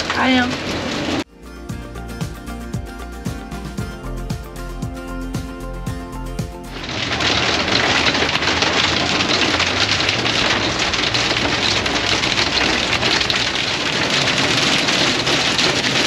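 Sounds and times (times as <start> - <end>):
hail and rain on vehicle roof: 0.0 - 1.2, 6.8 - 16.0.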